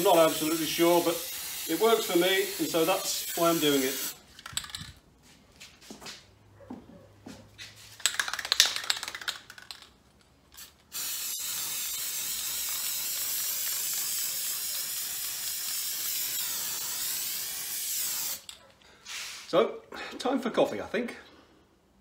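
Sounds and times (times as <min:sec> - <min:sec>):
aerosol can hissing: 0:00.0 - 0:04.2, 0:10.9 - 0:18.5.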